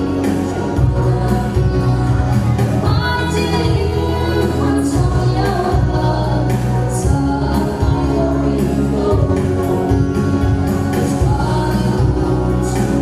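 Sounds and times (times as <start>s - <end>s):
instrumental accompaniment with bass: 0.0s - 13.0s.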